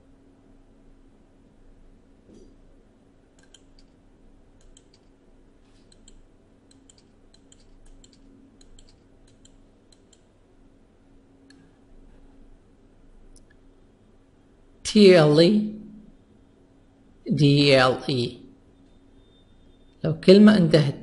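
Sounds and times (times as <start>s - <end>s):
low steady hum: 0.0s - 21.0s
computer clicking: 3.3s - 4.0s, 4.6s - 5.2s, 5.8s - 10.4s.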